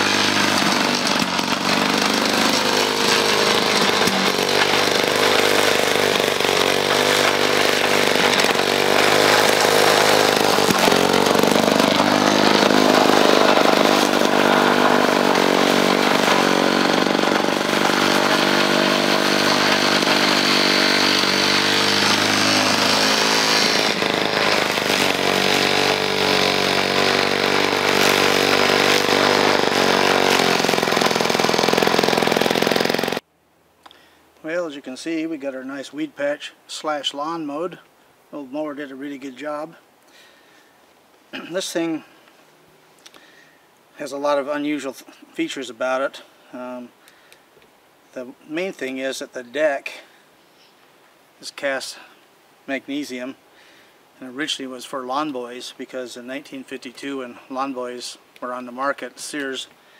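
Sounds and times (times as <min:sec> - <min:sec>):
lawnmower engine cutting grass: 0:00.0 - 0:33.2.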